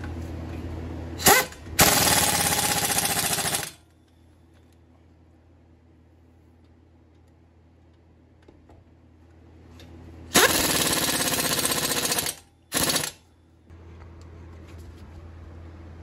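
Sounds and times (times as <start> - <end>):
pneumatic impact wrench hammering: 1.2 - 3.8, 10.3 - 13.2.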